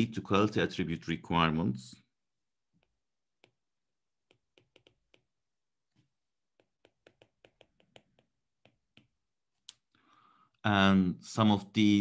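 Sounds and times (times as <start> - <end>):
stylus tapping on a screen: 2.7 - 9.9.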